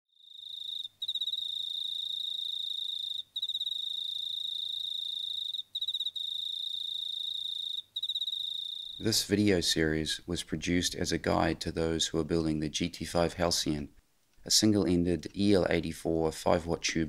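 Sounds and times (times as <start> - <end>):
cricket trilling: 0.2 - 9.1.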